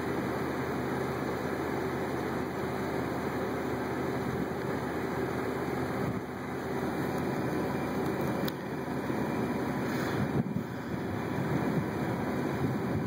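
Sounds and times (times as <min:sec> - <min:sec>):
wind on microphone: 0:10.1 - 0:13.0.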